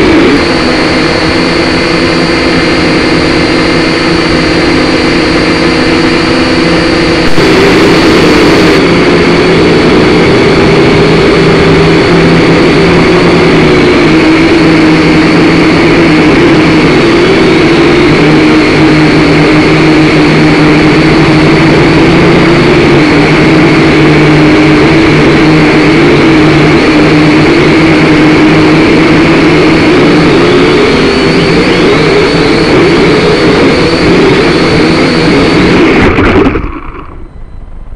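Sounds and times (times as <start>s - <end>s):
drone propellers whining: 0.0s - 37.9s.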